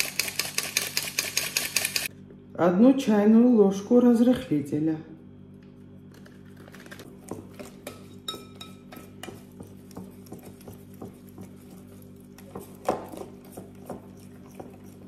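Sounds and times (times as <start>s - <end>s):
utensil clinking on glass bowl: 7.8s - 9.4s.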